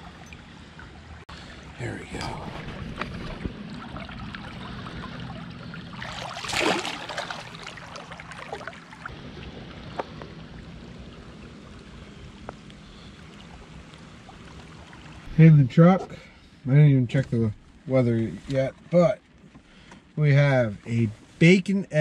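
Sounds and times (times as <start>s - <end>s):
creek water running: 0.0s - 21.2s
fish splashing in water: 2.6s - 11.9s.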